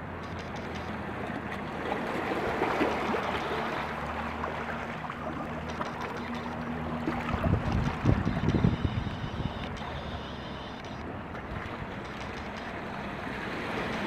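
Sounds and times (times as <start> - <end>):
water trickling among rocks: 2.6 - 8.6.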